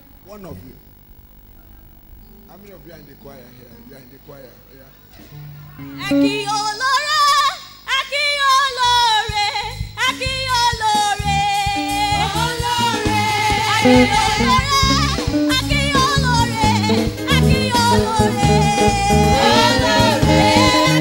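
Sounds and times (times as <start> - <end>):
instrumental accompaniment: 1.4 - 6.9, 9.7 - 21.0
person singing long bending notes: 5.8 - 6.8, 11.3 - 21.0
pulsing bass line: 11.2 - 21.0.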